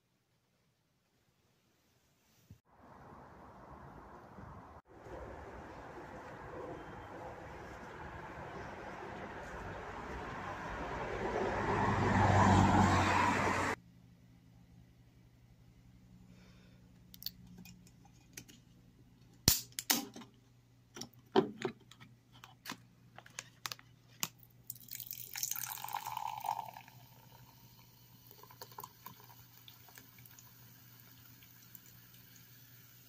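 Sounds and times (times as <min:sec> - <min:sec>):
drink pouring into glass: 0:24.7 - 0:30.4
faint fizz: 0:24.7 - 0:33.0.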